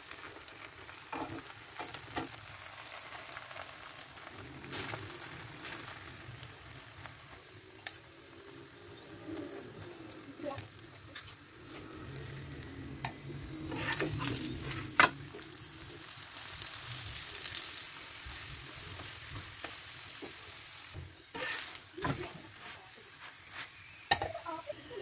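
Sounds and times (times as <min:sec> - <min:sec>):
flatbread sizzling on a griddle: 0:00.0 - 0:25.0
metal utensils clicking on griddle: 0:12.1 - 0:15.6.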